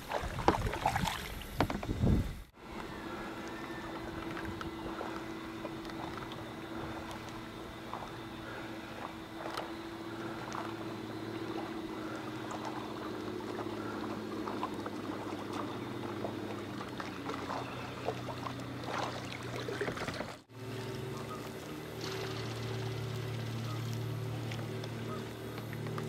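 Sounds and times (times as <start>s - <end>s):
paddle dipping into water: 0.0s - 1.9s, 3.4s - 20.5s
steady low hum: 0.0s - 26.0s.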